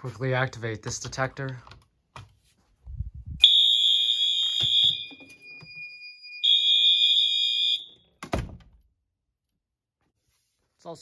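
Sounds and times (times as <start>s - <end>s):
electronic fire alarm tone: 3.4s - 8.0s.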